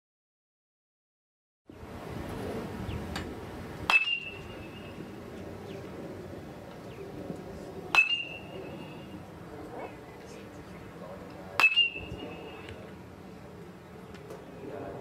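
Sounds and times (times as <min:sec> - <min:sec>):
outdoor field ambience: 0:01.7 - 0:15.0
metal bat hitting ball: 0:03.9 - 0:04.7, 0:07.9 - 0:08.6, 0:11.6 - 0:12.7.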